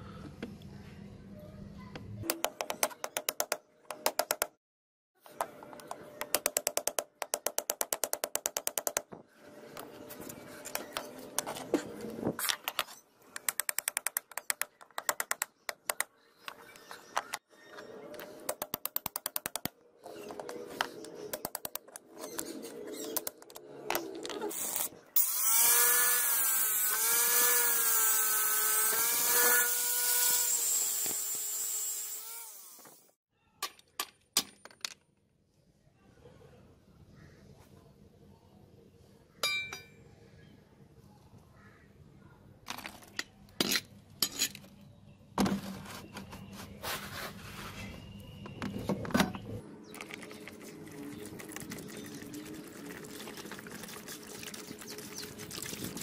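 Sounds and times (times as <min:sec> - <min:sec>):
angle grinder whining: 0:25.2 - 0:33.1.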